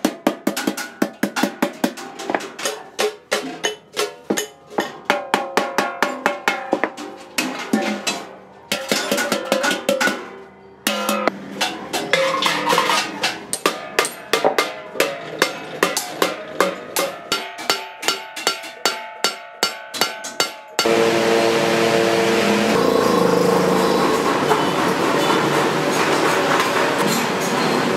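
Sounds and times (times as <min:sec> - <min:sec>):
hammer striking sheet metal: 0:00.0 - 0:21.0, 0:22.4 - 0:27.9.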